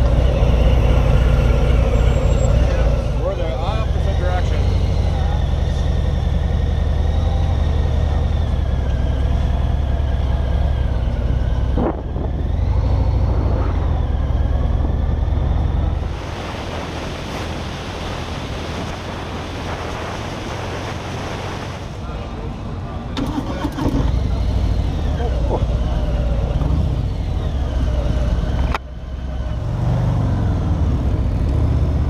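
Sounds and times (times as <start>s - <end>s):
low rumble: 8.5s - 23.1s
wind noise: 11.5s - 22.0s.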